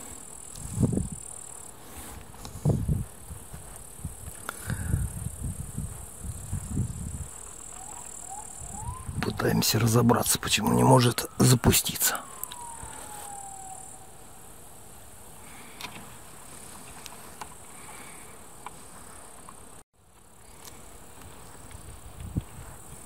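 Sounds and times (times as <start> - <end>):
insects chirring: 0.0 - 23.0
high whine falling in pitch: 6.8 - 15.1.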